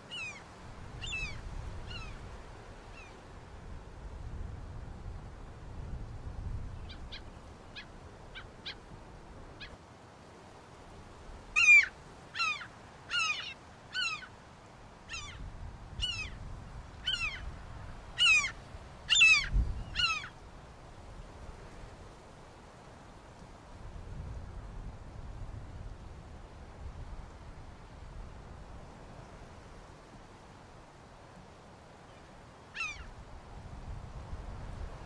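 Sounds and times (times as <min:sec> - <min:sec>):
bird calling: 0:00.1 - 0:00.4, 0:01.0 - 0:02.2, 0:11.6 - 0:14.3, 0:15.1 - 0:15.4, 0:16.0 - 0:16.4, 0:17.0 - 0:17.5, 0:18.2 - 0:20.3, 0:32.8 - 0:33.1.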